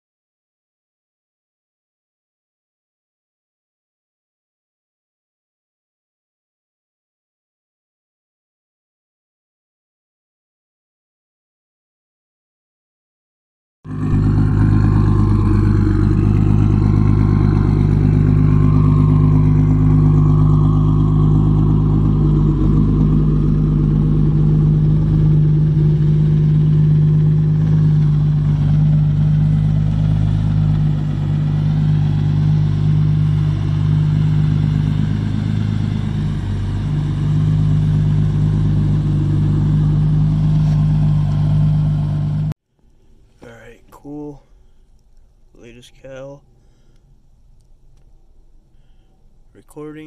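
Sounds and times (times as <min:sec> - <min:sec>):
car engine idling: 0:13.9 - 0:50.0.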